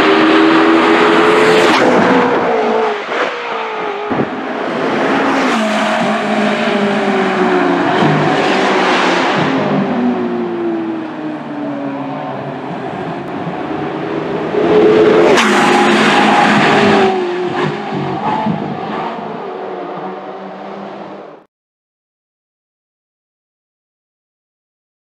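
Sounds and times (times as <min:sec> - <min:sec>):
race car engines at speed: 0:00.0 - 0:21.5.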